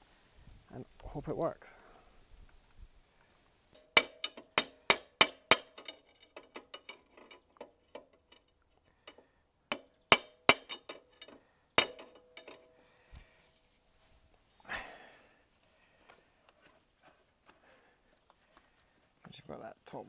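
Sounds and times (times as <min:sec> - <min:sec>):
steel bar clanking on metal: 0:03.8 - 0:12.7.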